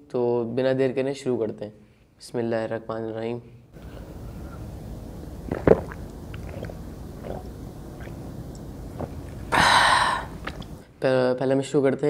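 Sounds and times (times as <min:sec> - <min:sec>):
breathy exhale: 0:03.8 - 0:04.7, 0:09.5 - 0:10.8
person swallowing: 0:05.4 - 0:10.8
throat and mouth clicks: 0:05.5 - 0:09.6, 0:10.2 - 0:10.8.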